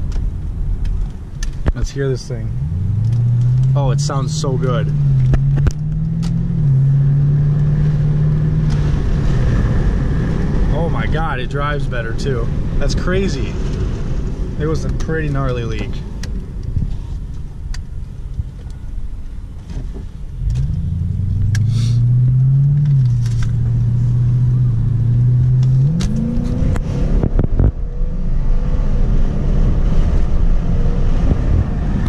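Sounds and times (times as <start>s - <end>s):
low rumble: 0.0s - 32.0s
loud car engine revving: 2.5s - 11.1s, 20.4s - 32.0s.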